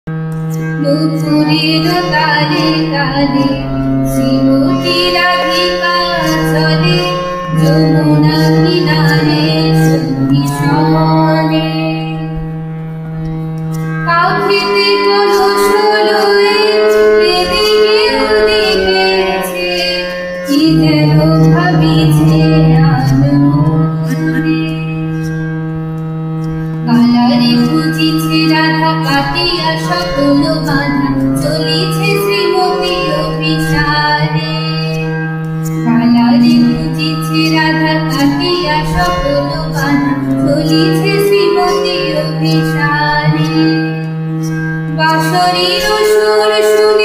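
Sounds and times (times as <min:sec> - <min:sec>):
devotional melody: 0:00.1 - 0:47.0
sustained low drone: 0:00.8 - 0:19.8, 0:20.5 - 0:43.6
percussion strikes: 0:13.2 - 0:46.2.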